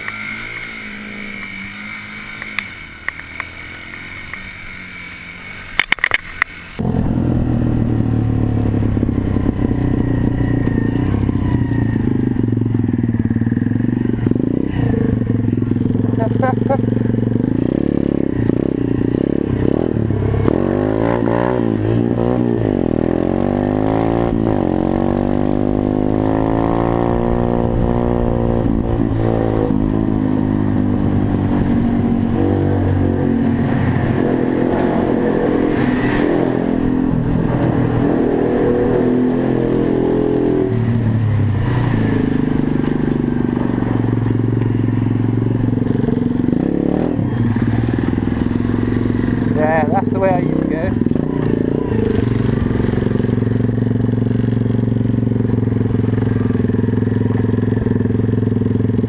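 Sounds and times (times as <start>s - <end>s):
pit bike engine revving: 0.0s - 59.0s.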